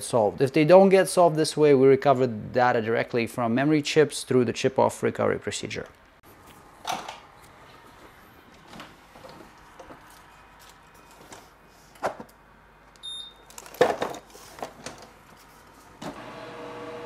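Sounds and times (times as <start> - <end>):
short high beep: 13.0 - 13.4.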